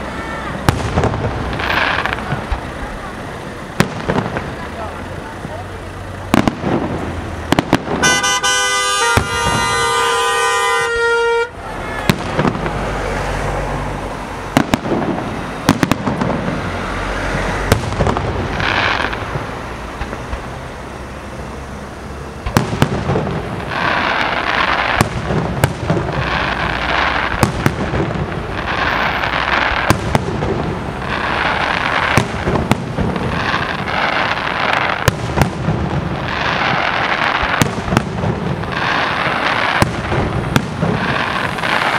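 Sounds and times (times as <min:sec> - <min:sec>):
fireworks launching and bursting: 0:00.0 - 0:41.9
horn blaring a chord: 0:08.0 - 0:11.6.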